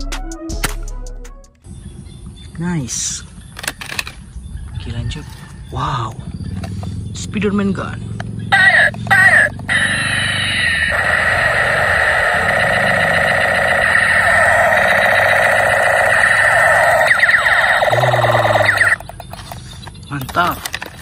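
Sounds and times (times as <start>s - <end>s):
warbling electronic siren toy: 8.5s - 19.2s.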